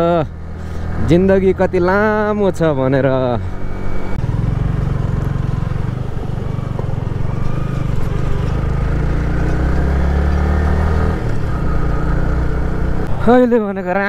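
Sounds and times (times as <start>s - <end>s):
road and wind noise: 0.0s - 14.0s
motorcycle engine running: 3.0s - 13.1s.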